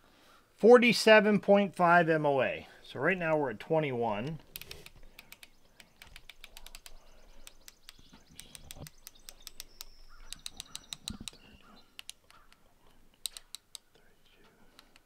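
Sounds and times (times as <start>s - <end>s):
scope turret clicking: 4.2s - 14.0s, 14.7s - 15.0s.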